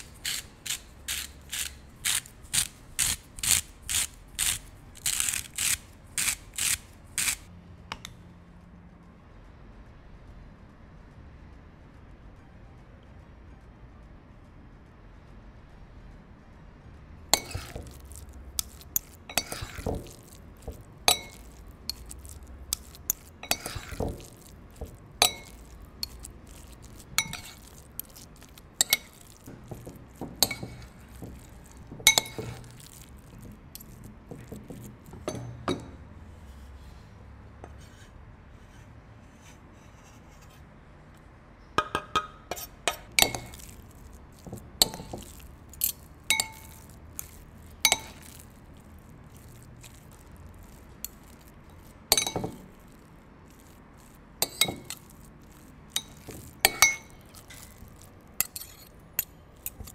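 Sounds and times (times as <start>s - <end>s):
soft mixing of sticky filling: 0.0s - 7.5s, 16.2s - 41.3s, 42.5s - 59.9s
metal spoons clinking on a bowl: 17.4s - 36.0s, 41.8s - 48.6s, 49.3s - 59.9s.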